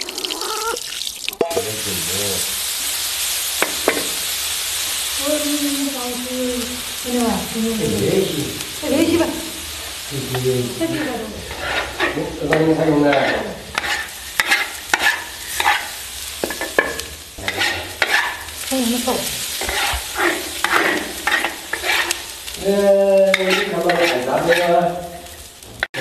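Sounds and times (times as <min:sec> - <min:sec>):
water poured into hot wok: 0:00.0 - 0:05.3
greens sizzling in a wok: 0:00.0 - 0:26.0
metal spatula scraping a wok: 0:10.3 - 0:26.0.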